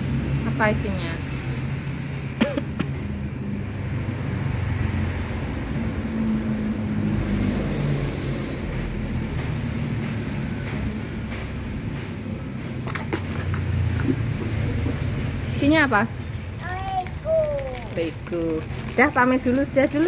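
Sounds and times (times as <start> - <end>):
low engine rumble: 10.6 - 20.0.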